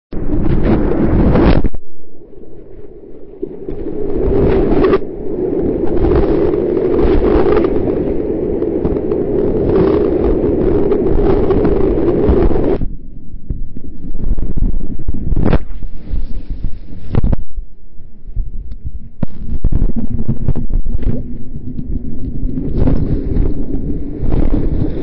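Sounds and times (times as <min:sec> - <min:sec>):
wind buffeting microphone: 0:00.1 - 0:25.0.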